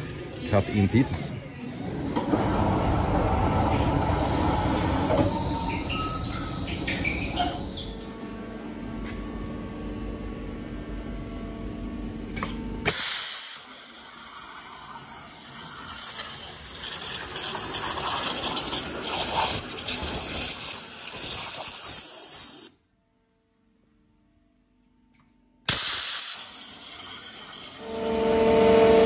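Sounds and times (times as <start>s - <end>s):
machine humming: 0.0s - 12.2s, 27.8s - 29.0s
high-pressure water jet hissing: 13.2s - 22.7s, 25.7s - 27.9s.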